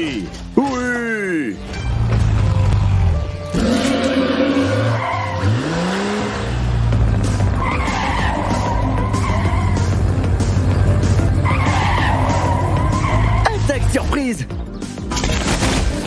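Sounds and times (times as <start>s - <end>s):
background music: 0.0s - 16.0s
car engine revving: 2.0s - 13.4s
tyres screeching: 3.4s - 6.5s, 7.3s - 13.9s.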